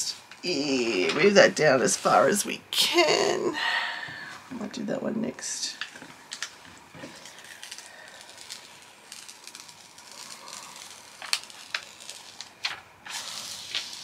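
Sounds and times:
paper sheet rustling and crackling: 6.3s - 14.0s.

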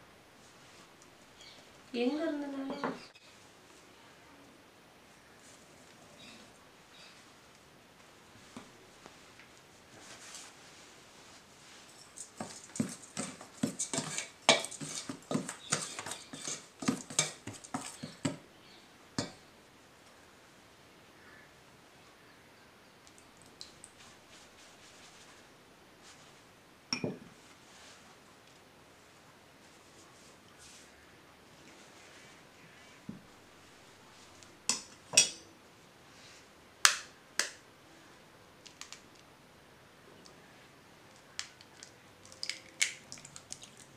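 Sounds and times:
kitchen utensils clinking: 12.0s - 18.3s
metal spoon scraping steel bowl: 13.6s - 18.2s
eggshell crackling: 41.1s - 43.9s.

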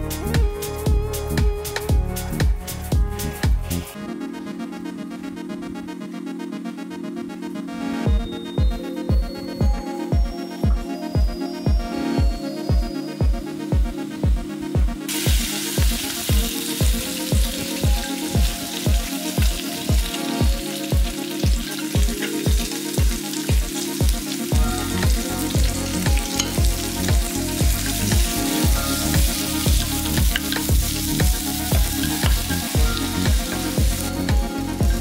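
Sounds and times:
background music with steady beat: 0.0s - 35.0s
meat sizzling in oil: 15.1s - 35.0s
wooden spatula stir-frying: 15.1s - 35.0s.

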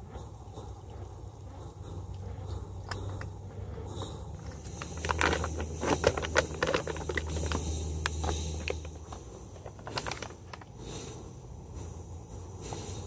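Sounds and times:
aluminium foil crinkling: 4.4s - 10.8s.

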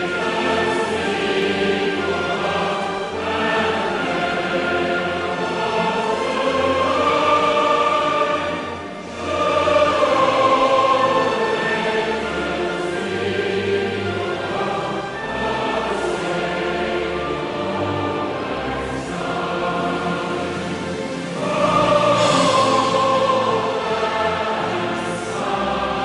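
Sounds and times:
choir singing sustained notes: 0.0s - 26.0s.

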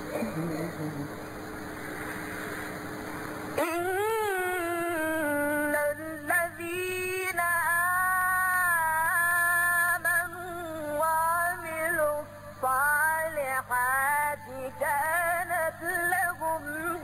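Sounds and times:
person chanting melodically: 3.6s - 17.0s.

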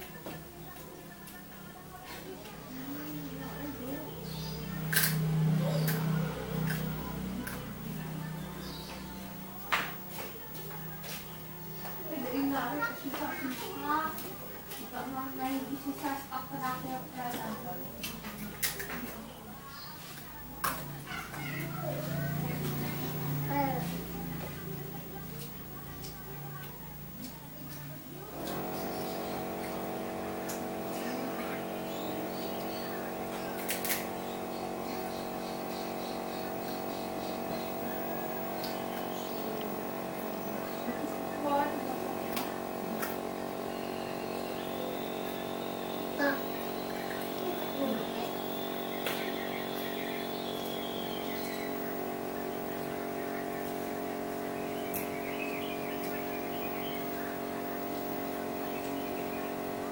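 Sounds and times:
steady mechanical hum: 0.0s - 59.9s
faint high chirps: 43.6s - 52.2s.

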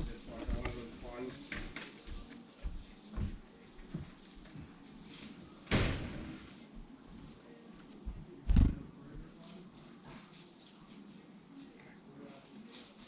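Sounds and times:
wing flutter whooshes: 8.5s - 8.9s.

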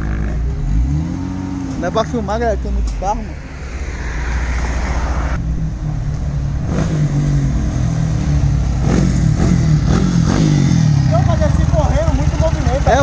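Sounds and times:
motorcycle exhaust revving: 0.0s - 2.3s, 5.2s - 13.0s.

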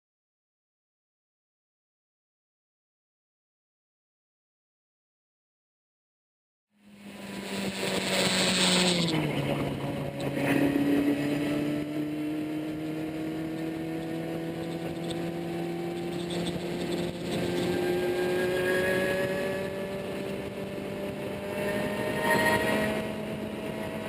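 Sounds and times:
car engine accelerating: 6.8s - 24.0s.

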